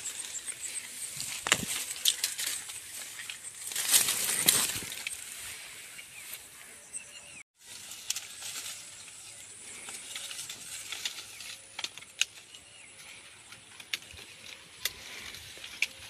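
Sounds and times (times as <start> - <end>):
leaves and branches rustling: 0.0 - 6.8, 7.6 - 16.0
twigs snapping: 1.2 - 5.2, 9.8 - 12.5.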